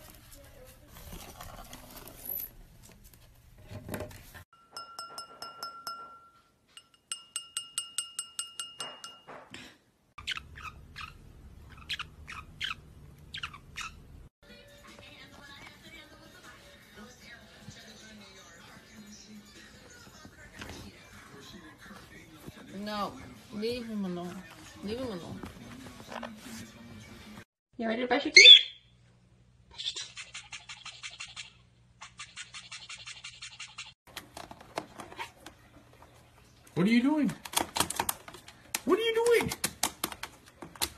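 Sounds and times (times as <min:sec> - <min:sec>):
wine glass clinking: 0:04.6 - 0:09.5
parrot chirping: 0:10.2 - 0:14.2, 0:28.3 - 0:28.9, 0:29.7 - 0:34.0
toothbrush scrubbing a beak: 0:29.8 - 0:34.0.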